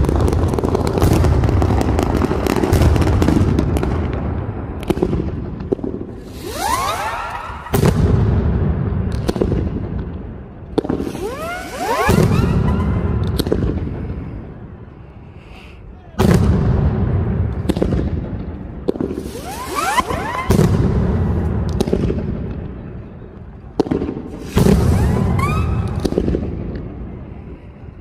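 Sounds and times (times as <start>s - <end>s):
firecrackers banging: 0.0s - 14.7s, 16.2s - 23.1s, 23.7s - 26.9s
whistling rockets: 4.8s - 9.9s, 10.7s - 14.4s, 18.8s - 22.9s, 23.8s - 27.2s.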